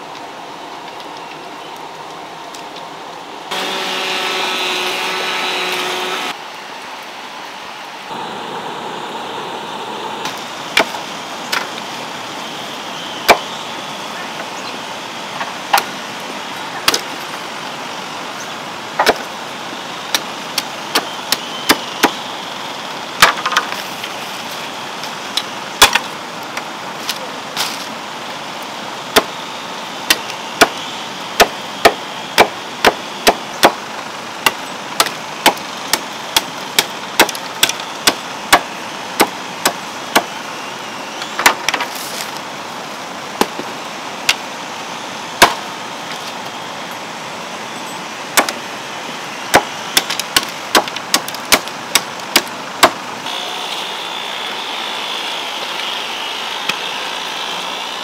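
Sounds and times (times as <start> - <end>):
steady background hiss: 0.0 - 58.0
machete chopping bamboo: 10.8 - 11.7, 19.0 - 19.2, 23.2 - 23.7, 25.8 - 26.0, 30.1 - 30.8, 31.4 - 33.8, 34.4 - 40.3, 41.4 - 41.9, 45.4 - 45.6, 48.4 - 48.6, 49.5 - 53.0.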